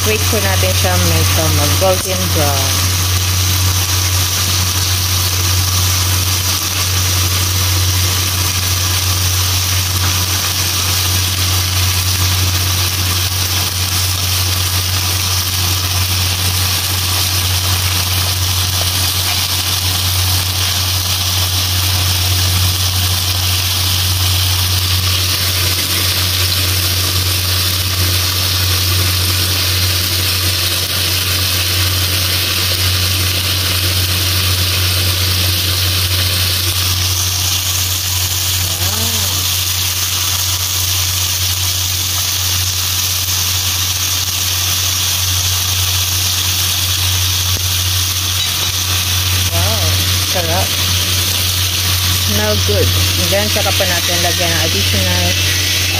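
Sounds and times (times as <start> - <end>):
steady low hum: 0.0 - 13.4, 47.5 - 55.9
chicken sizzling in a wok: 0.0 - 55.9.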